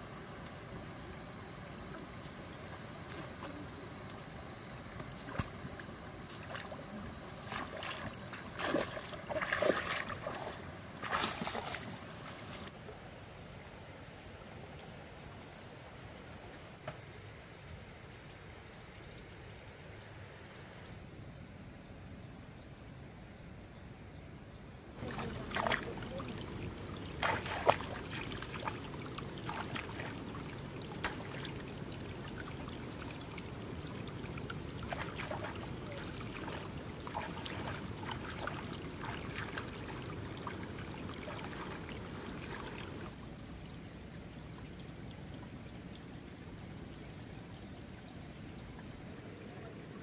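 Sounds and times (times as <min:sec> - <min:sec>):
water splashing and trickling: 0:00.0 - 0:13.1, 0:25.0 - 0:50.0
sharp water splashes: 0:06.3 - 0:12.3, 0:25.0 - 0:43.2.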